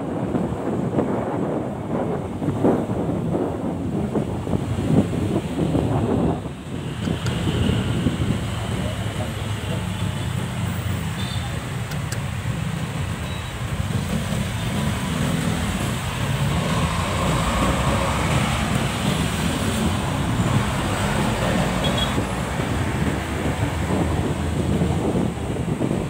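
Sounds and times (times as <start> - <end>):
vehicle engine and road noise: 0.0 - 26.0.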